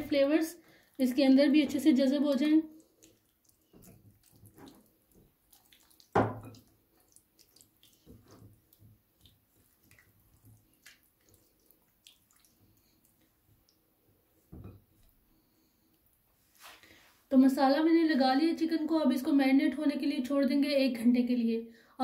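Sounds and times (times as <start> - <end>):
hands squelching marinade into chicken: 0.8 - 13.9.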